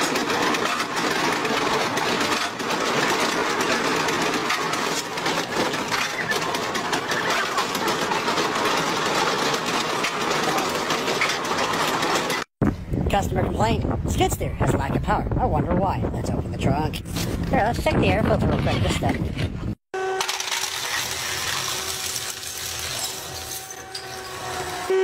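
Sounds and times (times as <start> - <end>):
mechanical clatter of treadmill: 0.0 - 12.5, 18.2 - 24.8
saw blade cutting wood: 20.0 - 25.0.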